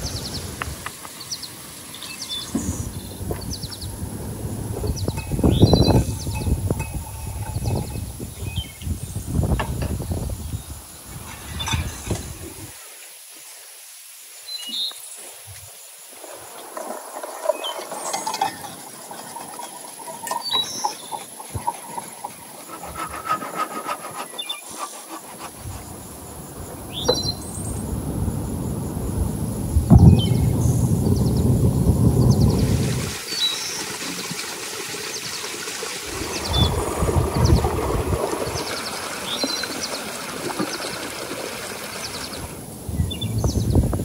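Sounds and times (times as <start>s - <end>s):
bowls and utensils clicking: 4.9s - 8.5s, 17.5s - 25.5s.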